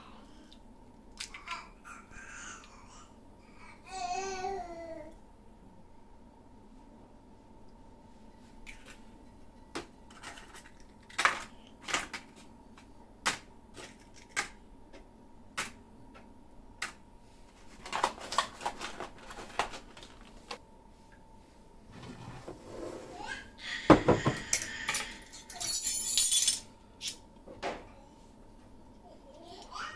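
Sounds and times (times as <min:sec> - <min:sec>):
plastic tray crackling and rattling: 0:17.8 - 0:20.3.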